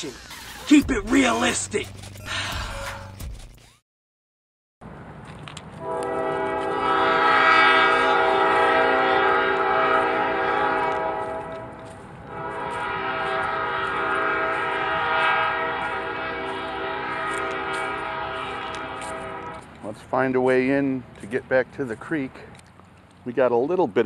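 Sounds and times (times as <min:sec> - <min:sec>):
horn blasts: 0:05.8 - 0:19.8.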